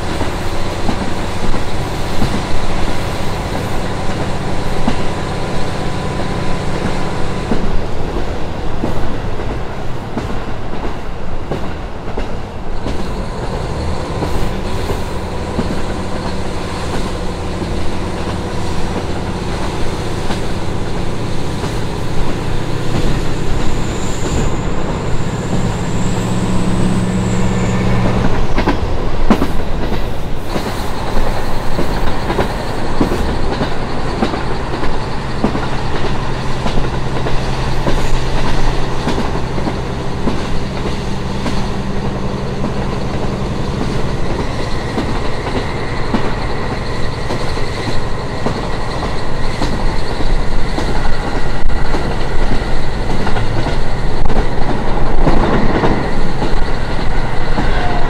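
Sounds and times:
wheels clickety-clack on rails: 0.0s - 58.0s
diesel engine drone: 13.2s - 58.0s.

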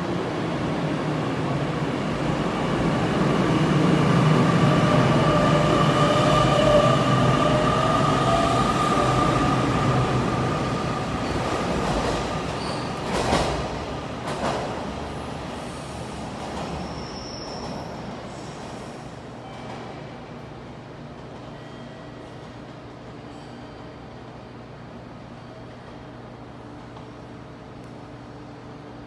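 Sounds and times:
train wheel and running noise: 0.0s - 29.0s.

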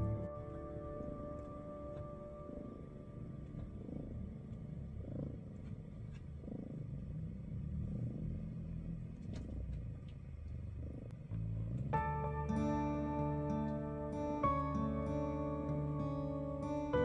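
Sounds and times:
soft music: 0.0s - 6.1s, 11.4s - 17.0s
kitten purring: 0.0s - 17.0s.

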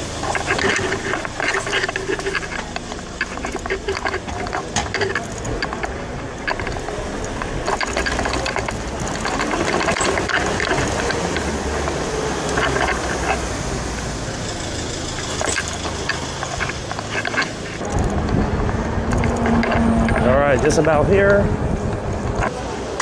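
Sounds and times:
low rumble: 0.0s - 22.5s
bicycle tyre and road noise: 0.0s - 23.0s
bike clicks and rattles: 0.0s - 23.0s
wind on microphone: 17.6s - 22.6s.

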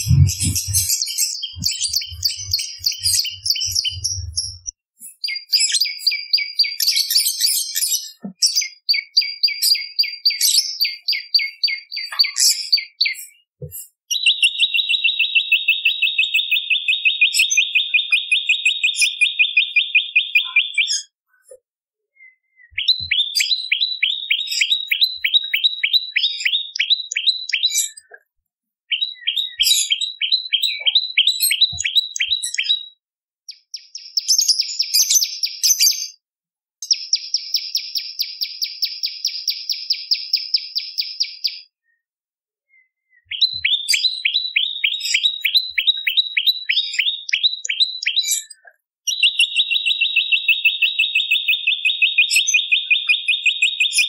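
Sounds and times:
buzzy bird trills: 0.0s - 4.7s.

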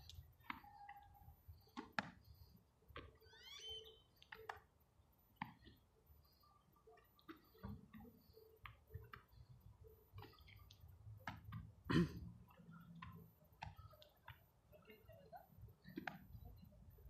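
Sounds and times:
footballs caught in gloved hands: 1.7s - 2.2s, 11.2s - 11.6s, 13.0s - 14.4s, 16.0s - 16.4s.

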